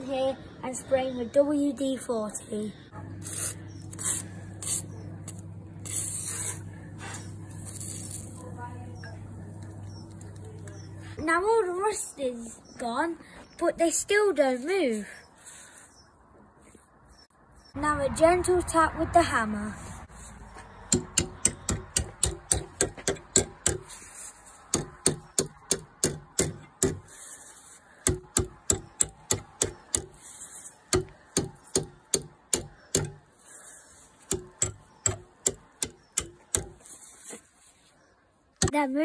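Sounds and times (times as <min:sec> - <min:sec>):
hammer tapping metal pliers: 0:30.9 - 0:33.2, 0:34.3 - 0:36.8.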